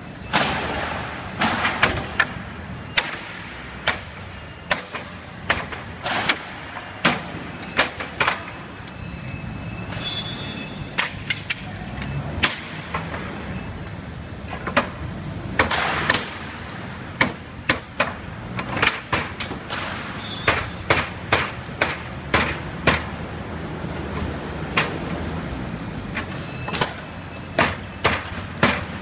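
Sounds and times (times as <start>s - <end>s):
hammer knocking on wood: 20.5s - 23.1s.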